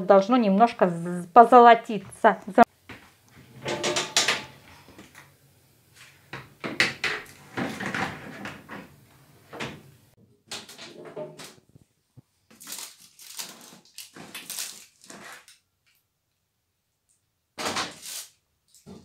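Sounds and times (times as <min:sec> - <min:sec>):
metal tray clattering: 0:03.5 - 0:04.6
oven door opening: 0:03.6 - 0:04.6.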